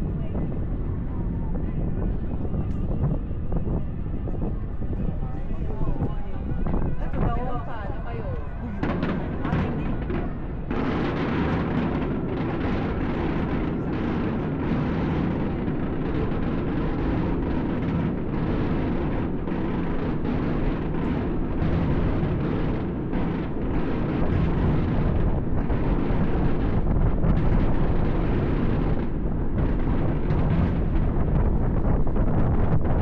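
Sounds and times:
fireworks rumbling and crackling: 0:00.0 - 0:33.0.

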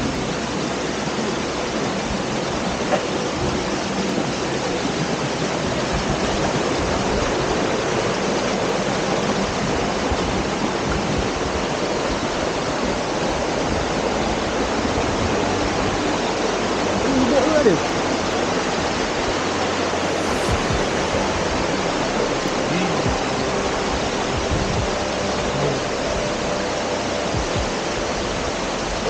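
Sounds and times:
stream rushing over rocks: 0:00.0 - 0:29.0.

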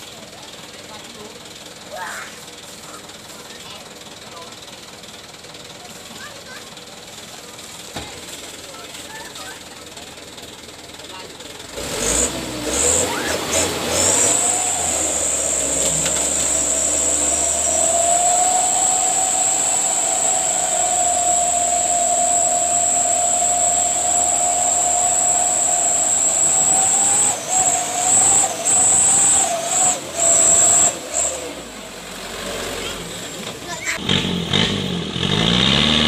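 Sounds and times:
truck engine whining at high revs: 0:07.0 - 0:36.0.

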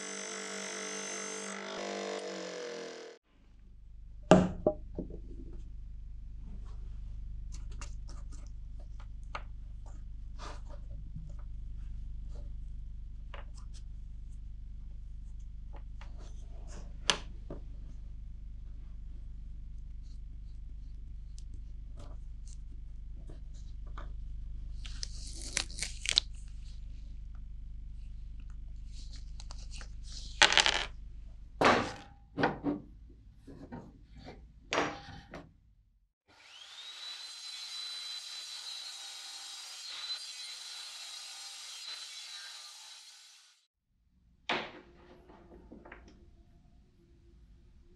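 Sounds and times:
table saw motor whine: 0:00.0 - 0:03.2, 0:36.3 - 0:43.6
low steady hum: 0:03.3 - 0:31.6.

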